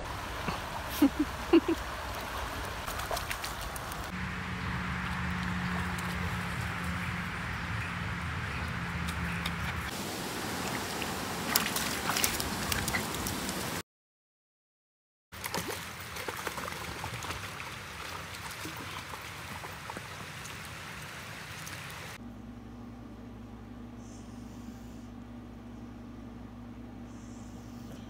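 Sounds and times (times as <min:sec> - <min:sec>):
creek water running: 0:00.0 - 0:07.7, 0:08.4 - 0:13.8, 0:15.4 - 0:22.2
dog splashing through water: 0:02.1 - 0:04.1, 0:10.5 - 0:13.7, 0:15.4 - 0:22.2.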